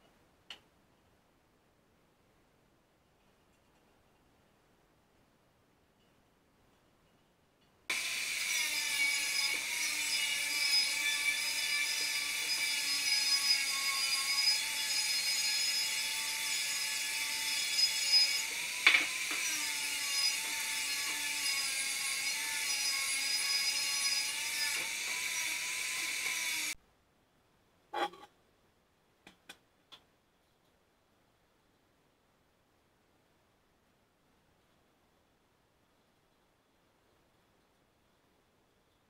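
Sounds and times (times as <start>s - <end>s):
angle grinder on steel rod: 7.9s - 26.8s.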